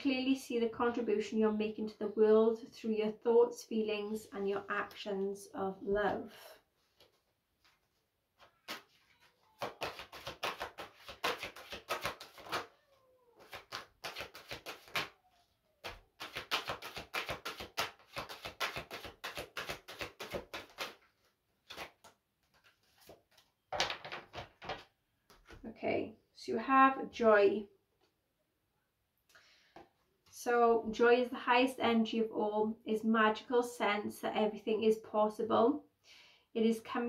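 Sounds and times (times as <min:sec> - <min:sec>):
cards being shuffled: 0:07.0 - 0:12.8, 0:13.4 - 0:15.2, 0:15.8 - 0:25.6.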